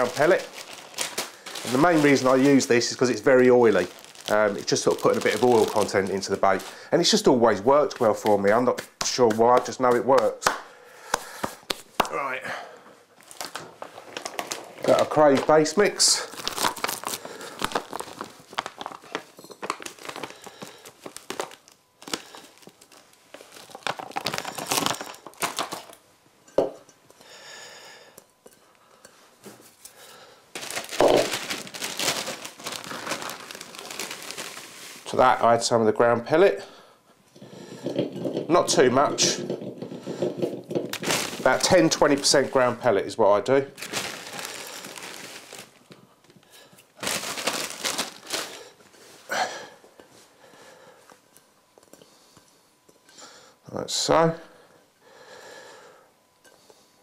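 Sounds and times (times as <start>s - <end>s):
plastic bags crinkling: 0.0s - 8.5s, 13.2s - 26.0s, 30.5s - 35.7s, 37.9s - 42.8s, 43.7s - 46.0s, 46.9s - 48.9s.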